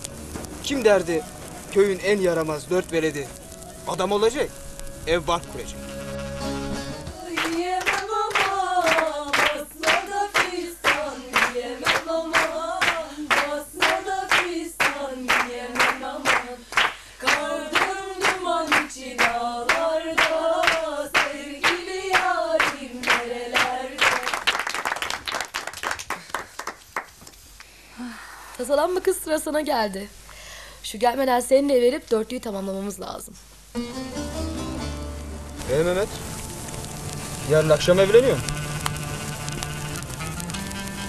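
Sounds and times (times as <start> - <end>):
women singing folk song: 6.9 - 24.5
rhythmic hand-clapping: 7.2 - 27.7
applause: 7.3 - 27.4.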